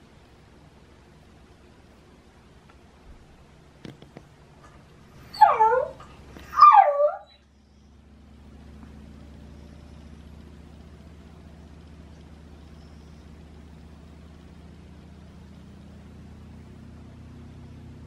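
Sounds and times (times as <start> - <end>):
steady low hum: 0.0 - 18.0
dog whining cries: 5.2 - 7.5.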